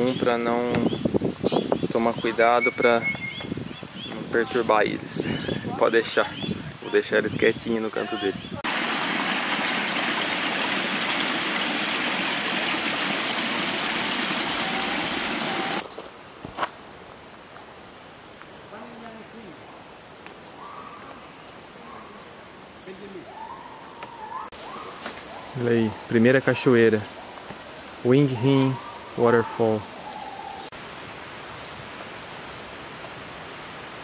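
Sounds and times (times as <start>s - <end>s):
forest stream trickling: 8.6s - 15.8s
high insect trill: 15.6s - 30.8s.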